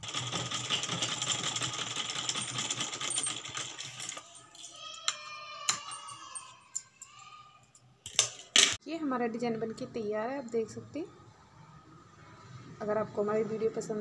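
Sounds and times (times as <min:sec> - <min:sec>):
sewing machine stitching: 0:00.0 - 0:04.2.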